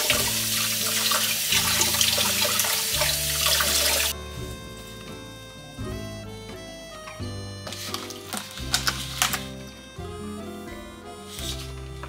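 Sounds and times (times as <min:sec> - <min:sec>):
kitchen tap running: 0:00.0 - 0:04.1
water splashing over fruit: 0:00.0 - 0:04.1.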